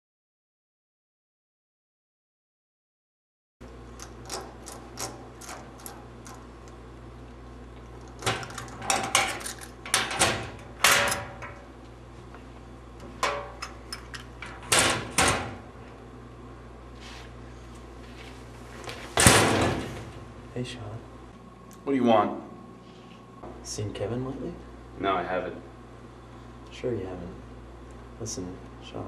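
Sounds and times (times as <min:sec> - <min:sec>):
steady low hum: 0:03.6 - 0:29.0
metal locker door rattling: 0:08.2 - 0:11.6, 0:13.2 - 0:15.6, 0:19.2 - 0:20.3.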